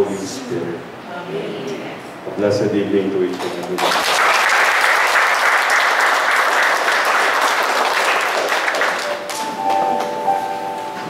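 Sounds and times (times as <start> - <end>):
audience applauding: 3.4 - 10.2
instrumental music sustained notes: 9.0 - 11.0.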